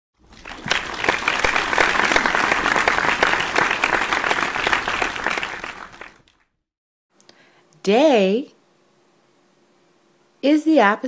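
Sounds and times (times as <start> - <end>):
crowd applauding: 0.2 - 6.4.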